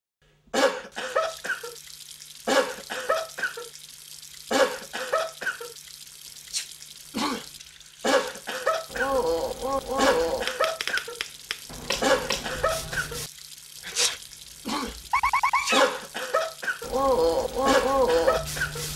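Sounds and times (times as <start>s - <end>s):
people coughing: 0.6s - 1.7s, 7.2s - 10.7s, 11.8s - 13.2s, 15.7s - 18.5s
faucet running into sink: 1.2s - 18.9s.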